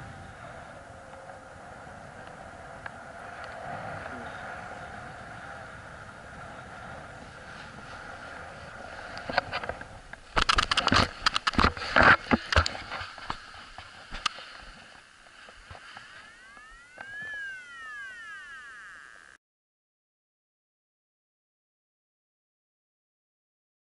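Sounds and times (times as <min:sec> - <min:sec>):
wind hissing on microphone: 0:00.0 - 0:17.7
rising and falling tone: 0:16.0 - 0:19.4.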